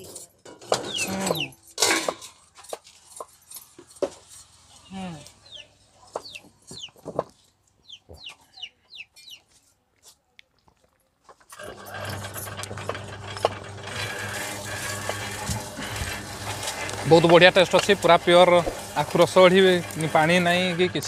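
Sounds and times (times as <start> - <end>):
chickens clucking: 4.7 - 9.6.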